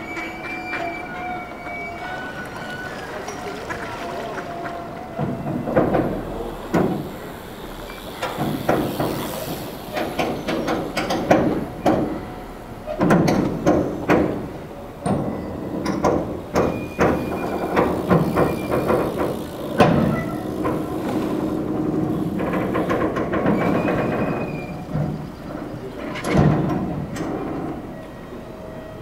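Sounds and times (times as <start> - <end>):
bridge squeak: 0.0 - 3.8, 4.8 - 29.0
metal bridge clanking: 0.0 - 28.0.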